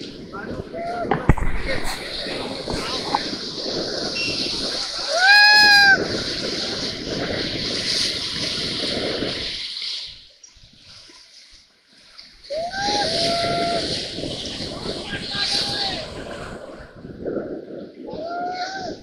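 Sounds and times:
person shouting: 0:05.0 - 0:06.0, 0:12.5 - 0:13.9, 0:15.3 - 0:16.1, 0:18.1 - 0:19.0.

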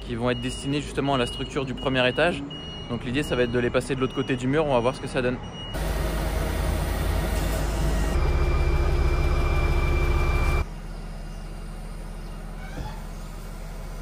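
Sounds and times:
high steady whine: 0:05.8 - 0:10.6
truck engine running: 0:05.8 - 0:14.0.

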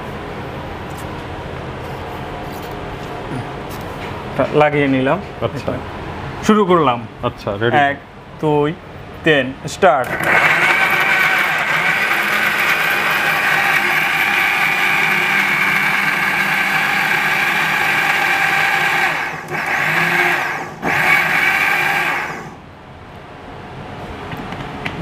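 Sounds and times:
mixer grinder motor running: 0:10.0 - 0:22.6.

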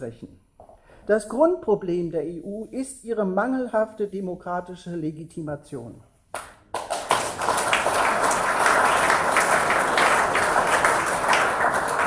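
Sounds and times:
audience applause: 0:06.8 - 0:12.0.

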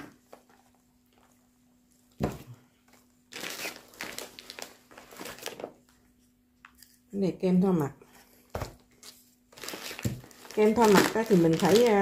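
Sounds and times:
plastic bags and bubble wrap crinkling: 0:00.0 - 0:06.3, 0:08.5 - 0:12.0.

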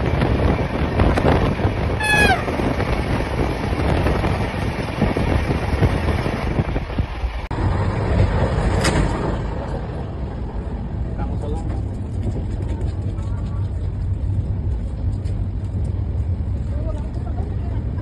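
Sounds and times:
train rushing past: 0:00.0 - 0:14.7
wind buffeting microphone: 0:00.0 - 0:18.0
train horn blast: 0:02.0 - 0:02.7.

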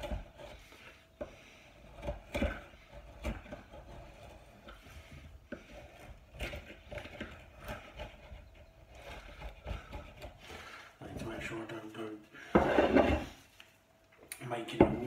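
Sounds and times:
carving tool scraping wood: 0:00.0 - 0:10.8.

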